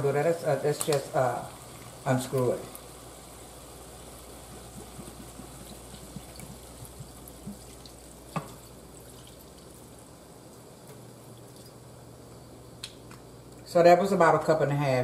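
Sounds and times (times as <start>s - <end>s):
sizzling in a hot pan: 0.0s - 10.8s
low steady hum: 0.0s - 15.0s
liquid pouring: 4.2s - 11.9s.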